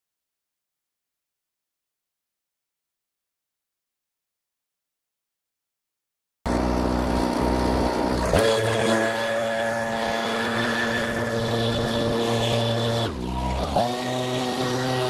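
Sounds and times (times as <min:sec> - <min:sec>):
leaf blower engine running: 0:06.5 - 0:15.0.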